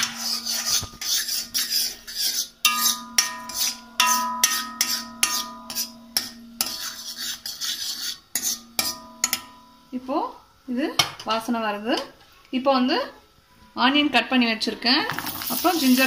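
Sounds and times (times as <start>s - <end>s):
steel spoon scraping a pan: 0.0s - 9.8s, 15.2s - 16.0s.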